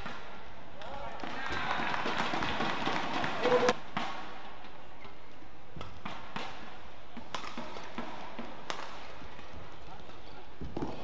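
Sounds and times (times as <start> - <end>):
arena background noise: 0.0 - 11.0
shuttlecock hits: 5.8 - 11.0.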